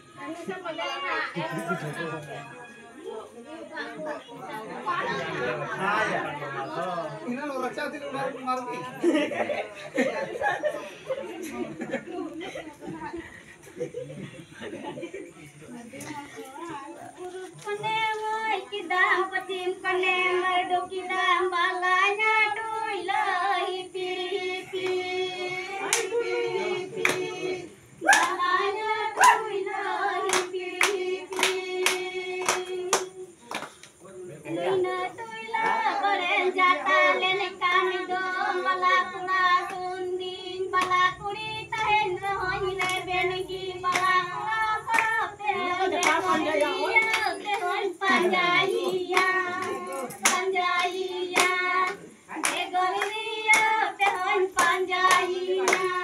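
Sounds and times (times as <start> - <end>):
women singing together: 0.0 - 7.3, 8.6 - 56.0
hand claps: 25.8 - 26.3, 27.0 - 27.4, 28.0 - 28.4, 29.2 - 34.0, 40.8 - 41.0, 42.8 - 43.2, 43.8 - 56.0.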